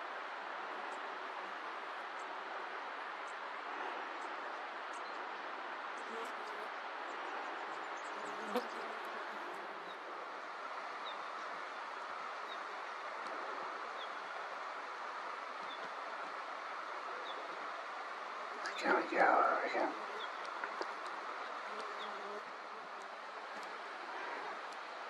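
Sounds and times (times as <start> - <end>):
flies buzzing: 8.1 - 9.8, 18.5 - 24.8.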